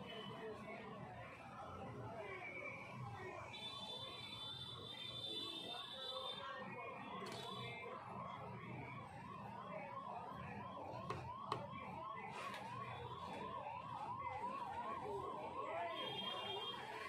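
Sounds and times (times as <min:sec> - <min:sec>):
siren yelping: 0:06.6 - 0:17.0.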